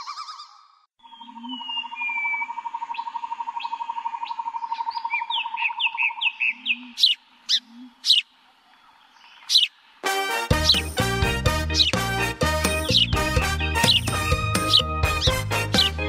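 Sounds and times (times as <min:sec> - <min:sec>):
bird trill: 0:00.0 - 0:09.8, 0:10.6 - 0:12.0, 0:12.7 - 0:15.9
sharp high bird chirps: 0:12.7 - 0:15.5.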